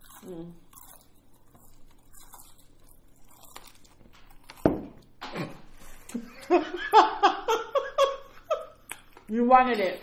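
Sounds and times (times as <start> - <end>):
laughter: 5.3 - 8.8.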